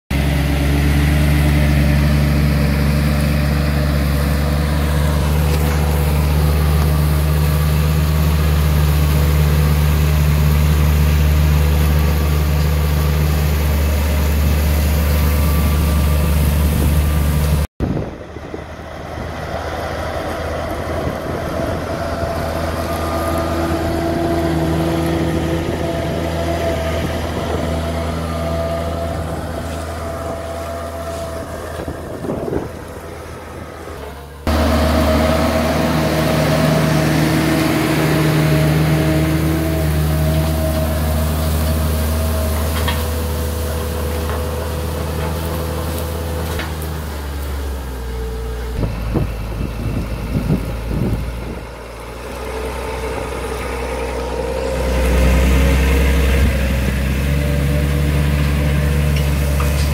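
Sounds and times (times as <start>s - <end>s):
tractor engine under load: 0.1s - 59.9s.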